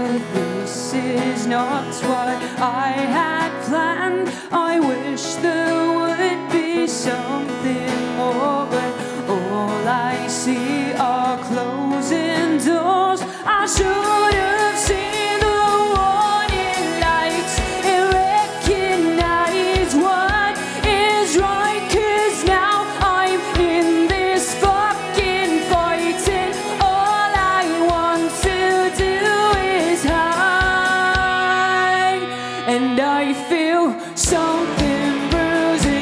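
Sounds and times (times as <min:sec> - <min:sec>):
rock band playing: 0:13.3 - 0:36.0.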